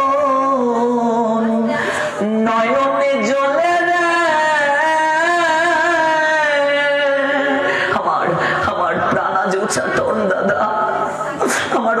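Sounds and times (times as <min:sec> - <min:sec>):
person singing long vibrato note: 0:00.0 - 0:07.8.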